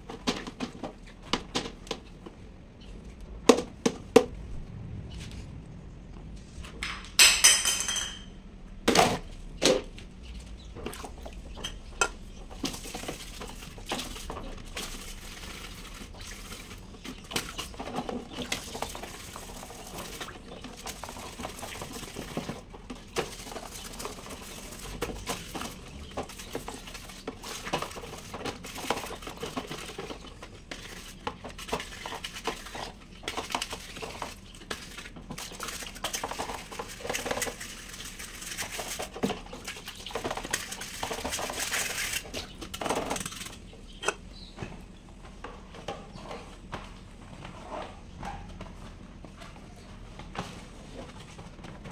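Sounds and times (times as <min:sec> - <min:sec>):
water splashing and sloshing: 0:08.9 - 0:44.2.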